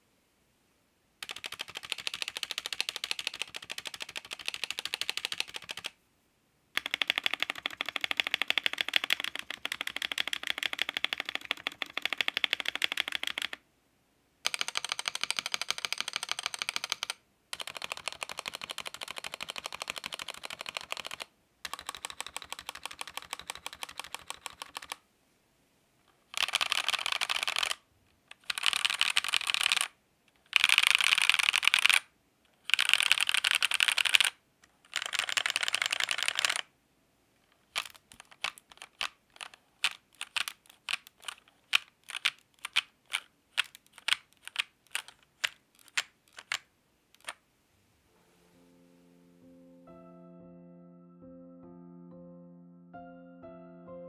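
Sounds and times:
fast typing on mechanical keyboard: 0:01.2 - 0:06.0, 0:06.8 - 0:13.6, 0:14.4 - 0:25.0, 0:26.3 - 0:36.7, 0:37.6 - 0:46.6.

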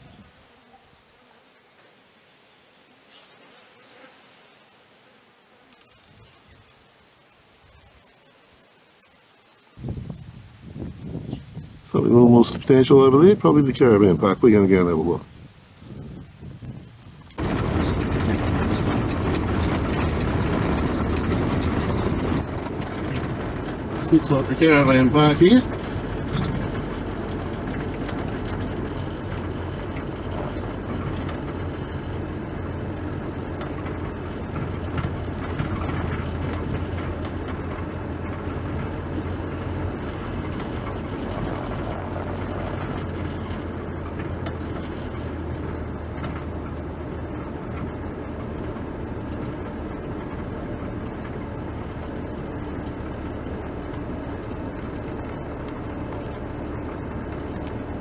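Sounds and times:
car engine and tyre noise: 0:16.2 - 0:58.0.

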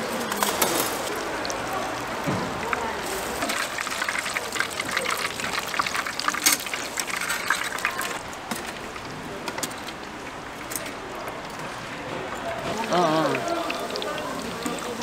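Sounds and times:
hot oil sizzling and crackling: 0:00.3 - 0:11.5, 0:12.5 - 0:15.0.

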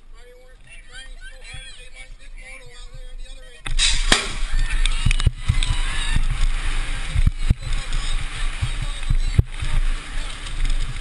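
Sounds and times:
camera rattling: 0:02.7 - 0:11.0
rushing wind noise: 0:03.7 - 0:11.0.

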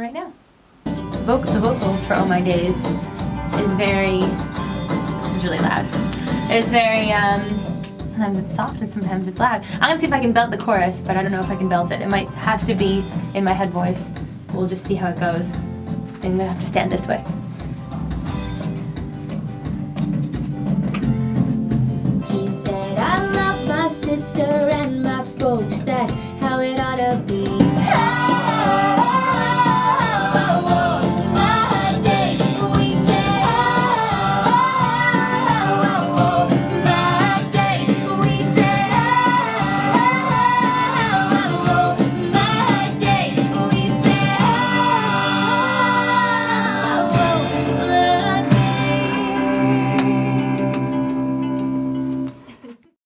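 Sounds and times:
voices singing pop song: 0:01.3 - 0:12.3, 0:22.2 - 0:51.3
band playing: 0:16.0 - 0:52.3.

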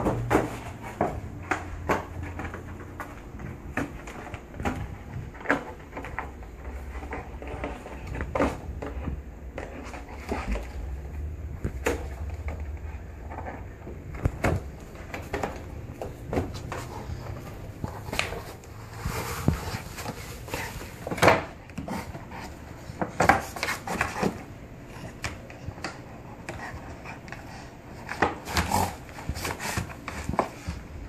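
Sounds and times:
dog tearing and chewing cardboard: 0:11.7 - 0:24.5, 0:25.1 - 0:30.9
cardboard box scraping on wooden floor: 0:15.2 - 0:21.2, 0:28.2 - 0:30.6.

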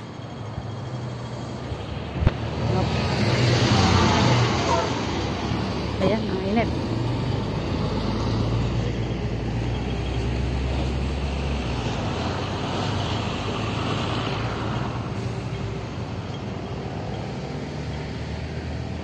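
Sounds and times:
large vehicle engine humming: 0:00.0 - 0:19.0
traffic hiss: 0:10.2 - 0:18.3.

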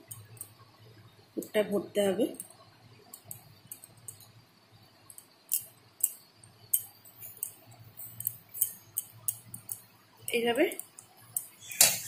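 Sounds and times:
steel spoon clicking and scraping: 0:02.4 - 0:04.4, 0:05.1 - 0:12.0.

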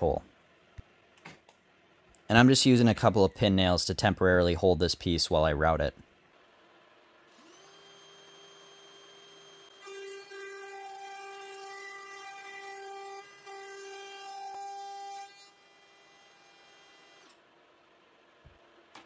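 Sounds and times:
router whining through wood: 0:07.3 - 0:17.4.

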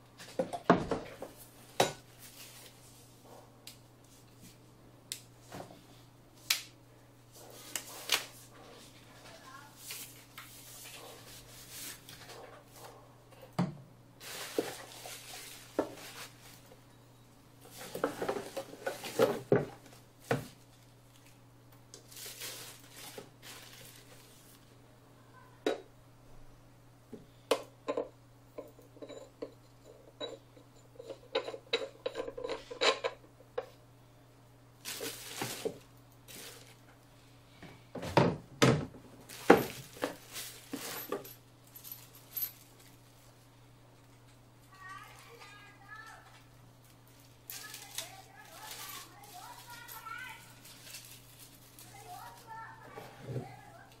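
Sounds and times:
foam and plastic wrap rustling: 0:01.3 - 0:03.1, 0:07.4 - 0:12.4, 0:14.2 - 0:16.9, 0:17.6 - 0:21.4, 0:22.0 - 0:24.8, 0:34.8 - 0:36.9, 0:39.2 - 0:41.4, 0:44.7 - 0:54.0.

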